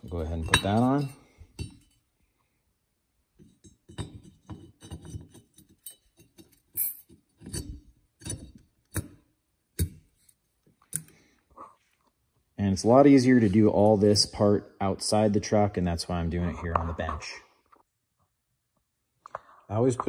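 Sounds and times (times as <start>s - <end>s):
metal parts clinking on workbench: 3.6s - 9.0s.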